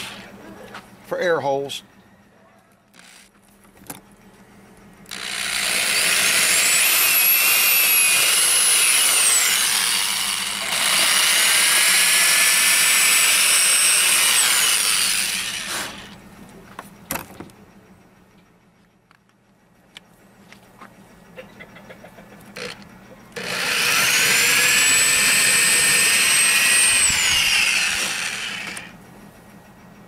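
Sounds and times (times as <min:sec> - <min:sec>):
drill bit cutting foam: 0:03.0 - 0:03.2, 0:05.1 - 0:16.2, 0:23.4 - 0:28.9
electric drill motor whine: 0:03.0 - 0:03.3, 0:05.1 - 0:16.2, 0:23.4 - 0:29.0.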